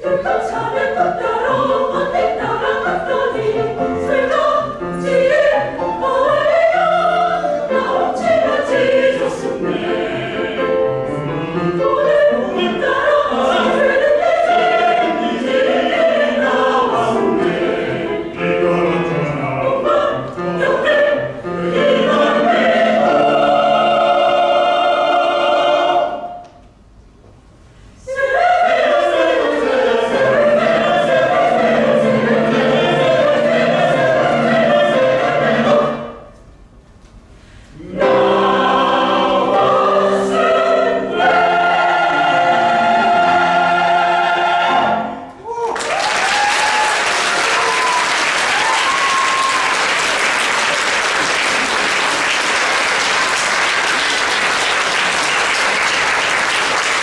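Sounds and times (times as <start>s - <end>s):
mixed choir singing: 0.0s - 26.4s, 28.0s - 36.4s, 37.8s - 45.4s
audience cheering: 45.4s - 51.7s
audience applauding: 45.6s - 57.0s.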